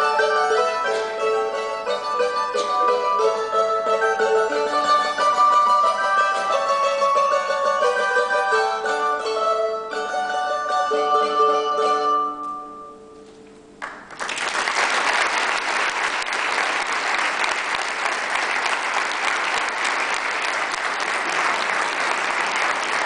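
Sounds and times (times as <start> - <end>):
mandolin ensemble chord: 0.0 - 13.4
audience applause: 13.8 - 23.0.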